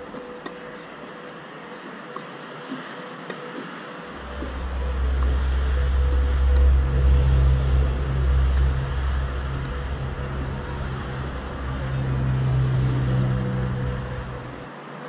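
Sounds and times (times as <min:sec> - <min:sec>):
loud low rumble: 0:04.1 - 0:14.7.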